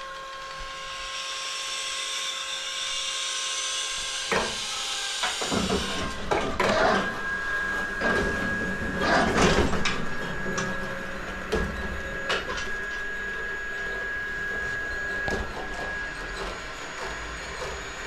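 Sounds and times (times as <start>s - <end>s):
crane motor whine: 0.0s - 18.0s
crane clanking and knocking: 5.2s - 18.0s.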